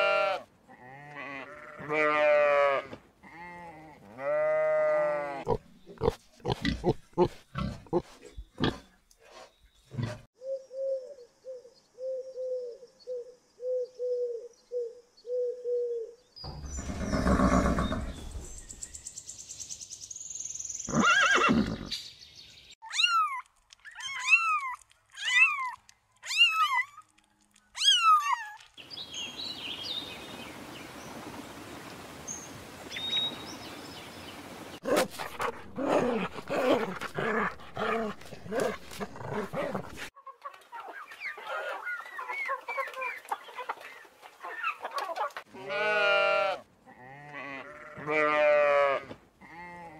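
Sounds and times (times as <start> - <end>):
pig grunting: 5.4 - 9.0, 34.8 - 40.1
dog growling: 34.8 - 40.1
horse snorting: 34.8 - 40.1.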